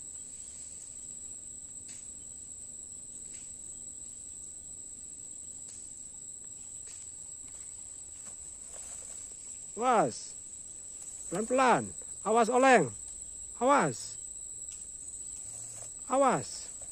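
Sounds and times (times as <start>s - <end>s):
insect chorus: 0.0s - 16.9s
dry leaves crackling: 7.4s - 9.8s, 10.7s - 11.7s, 15.3s - 16.9s.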